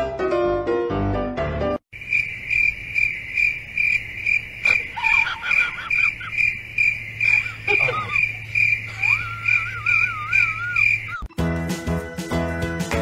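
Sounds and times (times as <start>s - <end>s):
high-pitched chirp: 4.9s - 11.3s.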